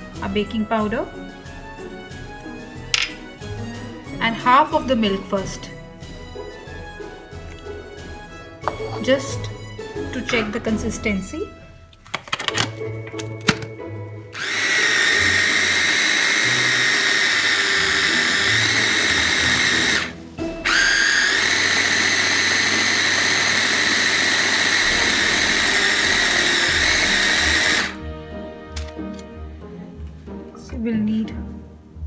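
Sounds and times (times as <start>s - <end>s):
blender motor whining: 14.4s - 28.0s.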